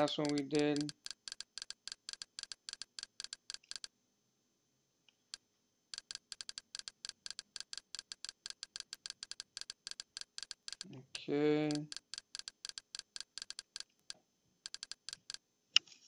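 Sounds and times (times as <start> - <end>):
menu navigation ticks: 0.0 - 1.2.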